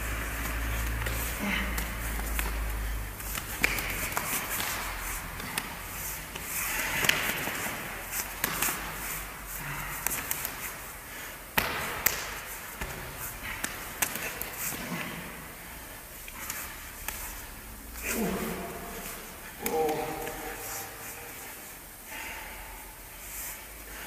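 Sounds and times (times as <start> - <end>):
slaps and thuds of arms striking: 0.3 - 9.2, 9.8 - 10.8, 11.5 - 15.3.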